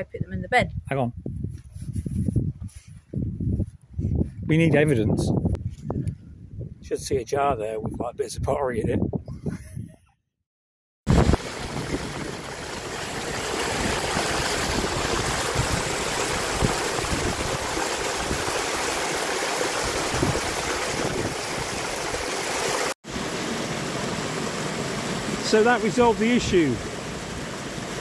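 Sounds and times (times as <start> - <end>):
stream rushing over rocks: 11.1 - 28.0.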